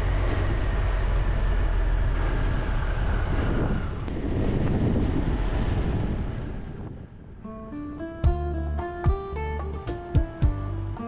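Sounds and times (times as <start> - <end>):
motorcycle engine running: 0.0 - 4.0
wind rushing over microphone: 0.0 - 8.6.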